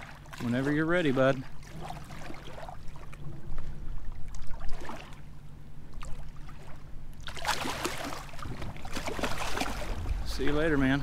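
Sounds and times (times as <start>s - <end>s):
steady low hum: 0.0s - 11.0s
water sloshing: 0.0s - 11.0s
fish splashing in water: 6.0s - 10.1s.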